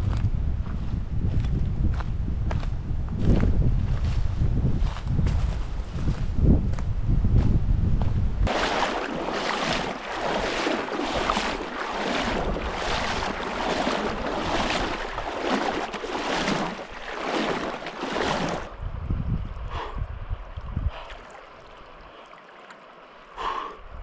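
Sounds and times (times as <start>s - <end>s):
feet splashing in river: 8.5s - 18.7s, 20.4s - 23.8s
water washing: 8.5s - 18.7s.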